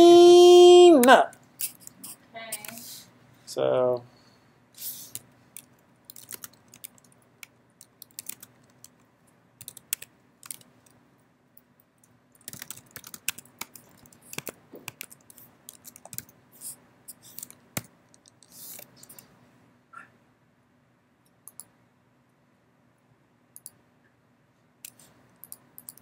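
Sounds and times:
typing on keyboard: 5.1s - 9.0s, 9.6s - 11.0s, 12.4s - 16.4s, 17.1s - 19.2s, 24.9s - 26.0s.

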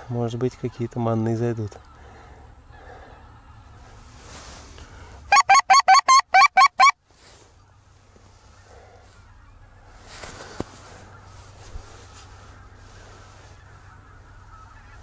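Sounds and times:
goose call honks: 5.3s - 7.0s, 10.8s - 15.0s.

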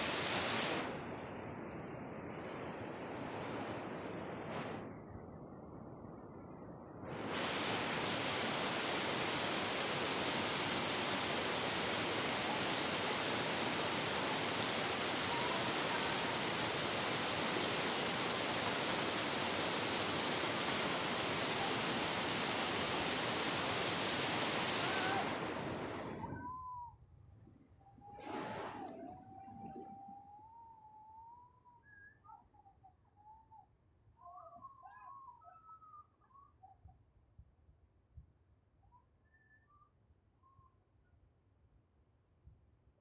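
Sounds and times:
river rapids rushing: 7.5s - 26.0s.

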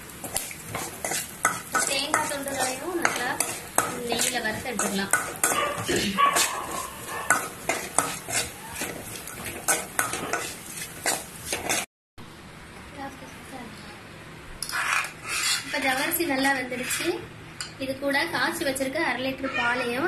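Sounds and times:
metal spoon scraping a pan: 0.2s - 11.9s, 14.6s - 17.2s.

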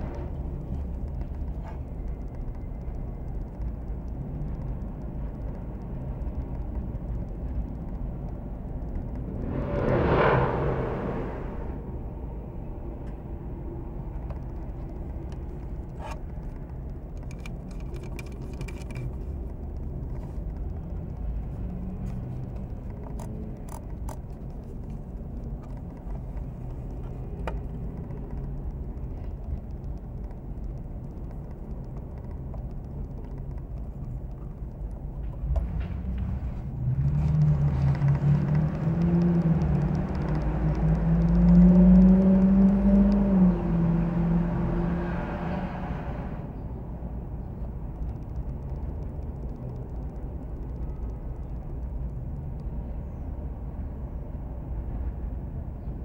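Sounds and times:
faint clicks: 0.0s - 9.6s, 14.0s - 43.6s, 47.3s - 54.1s
low rumble: 0.0s - 15.1s
motor vehicle engine drone: 0.0s - 56.0s.

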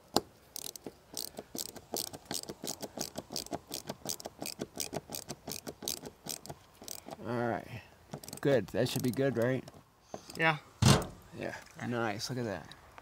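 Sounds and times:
ratchet clicking: 0.6s - 7.2s, 8.2s - 9.2s
sharp knock: 10.8s - 11.2s.

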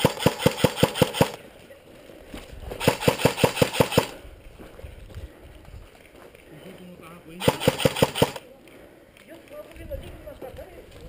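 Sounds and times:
airsoft rifle firing rapidly: 0.0s - 1.4s, 2.8s - 4.2s, 7.4s - 8.4s.

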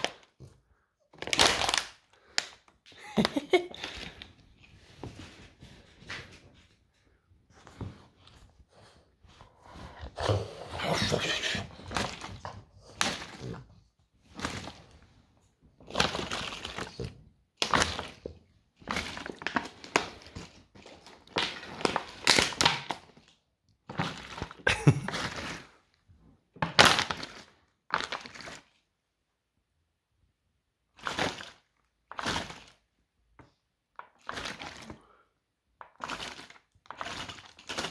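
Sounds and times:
dog crunching plastic bottle: 0.0s - 5.0s, 9.9s - 25.9s, 26.5s - 28.8s, 30.9s - 32.9s, 33.9s - 35.2s, 35.8s - 37.9s.

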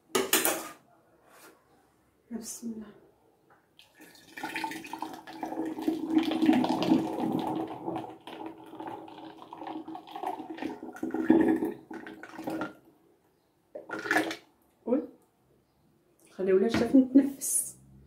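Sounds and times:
juice pouring into bottle: 3.8s - 12.8s, 13.8s - 14.4s.

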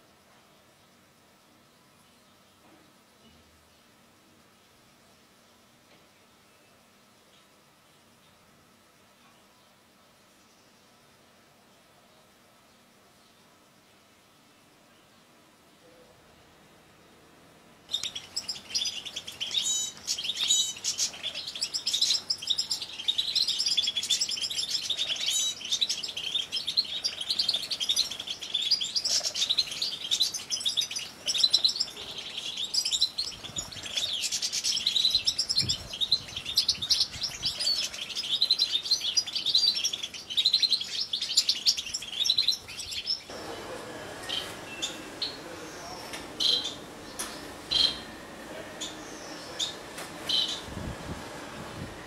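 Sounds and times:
goldfinches chirping and trilling: 17.9s - 43.5s, 44.2s - 50.7s.

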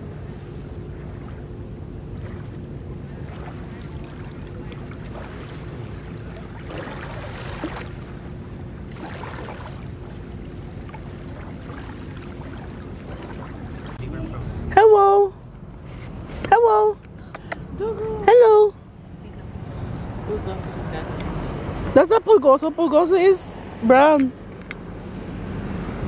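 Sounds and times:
faint hum: 0.0s - 21.1s
small waves washing on sand: 2.1s - 14.4s.

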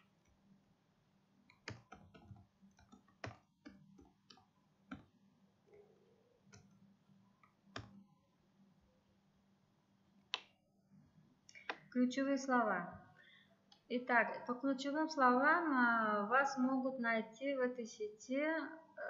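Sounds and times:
faint steady hum: 0.0s - 19.0s
keyboard and mouse clicks: 1.5s - 5.1s, 6.5s - 6.8s, 7.4s - 8.0s, 10.3s - 10.6s, 11.5s - 11.9s.

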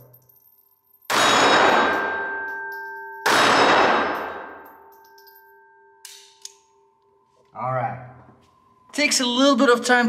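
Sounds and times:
pistol shots with ringing decay: 1.1s - 4.7s.

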